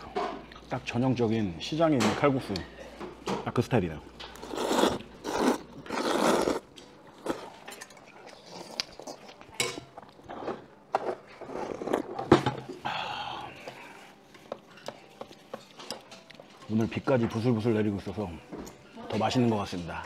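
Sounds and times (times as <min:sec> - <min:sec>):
noodles being slurped: 0:04.4 - 0:06.6
chopsticks clinking on metal bowls: 0:13.6 - 0:17.5.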